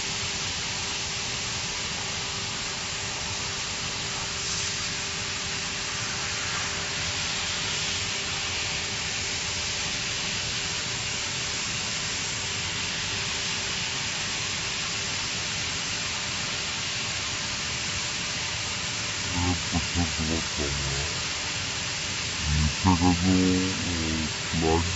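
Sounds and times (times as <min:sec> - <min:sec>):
faint steady hum: 0:19.2 - 0:21.3, 0:22.4 - 0:24.9.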